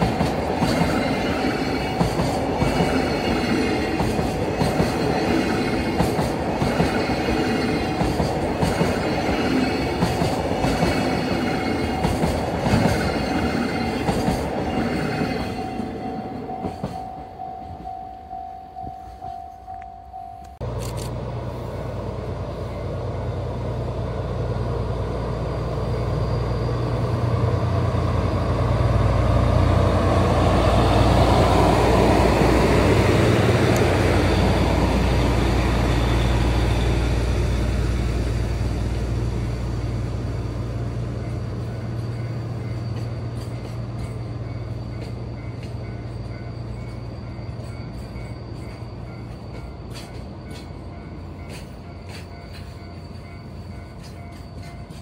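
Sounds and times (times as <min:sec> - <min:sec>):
train wagons rolling: 0:00.0 - 0:19.8, 0:30.0 - 0:55.0
diesel locomotive engine drone: 0:00.0 - 0:55.0.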